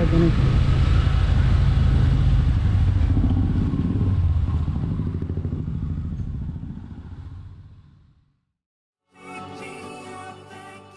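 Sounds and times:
motorcycle engine running: 0.0 - 8.4.

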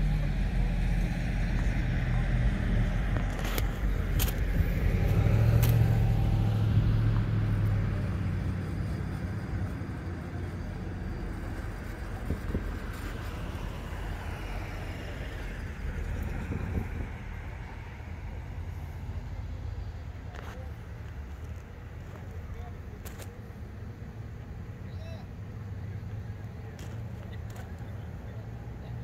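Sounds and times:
trucks rumbling along rail track: 0.0 - 29.0.

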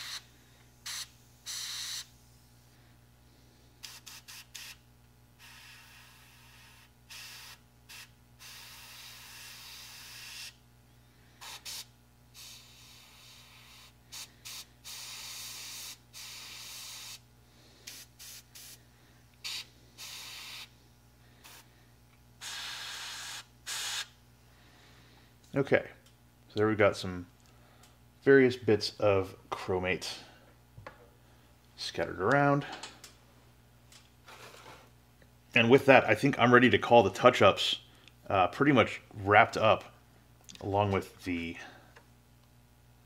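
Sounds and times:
airbrush hissing: 0.0 - 2.5, 3.8 - 4.8, 5.4 - 10.6, 11.4 - 18.8, 19.4 - 20.8, 21.4 - 21.7, 22.4 - 24.2.

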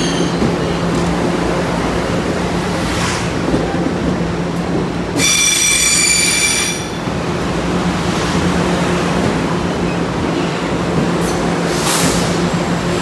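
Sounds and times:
train wheel squeal: 0.0 - 0.5, 5.2 - 7.0
train running rumble: 0.0 - 13.0.

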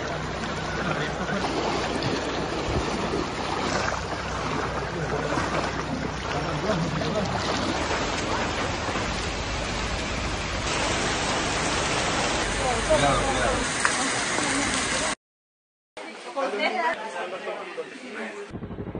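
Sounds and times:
low steady hum: 0.0 - 13.7
floodwater rushing: 0.0 - 15.2.

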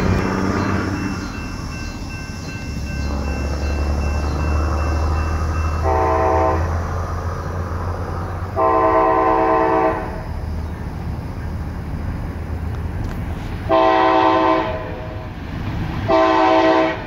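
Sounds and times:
diesel locomotive engine rumble: 0.0 - 17.0
locomotive air horn blasts: 5.8 - 6.8, 8.5 - 10.3, 13.7 - 15.2, 16.1 - 17.0.

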